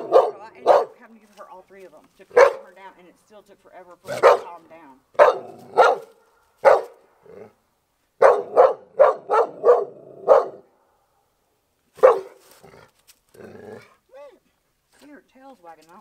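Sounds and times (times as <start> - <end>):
dog barking: 0.0 - 1.0, 2.3 - 2.7, 4.1 - 4.6, 5.2 - 7.0, 8.2 - 10.7, 12.0 - 12.4.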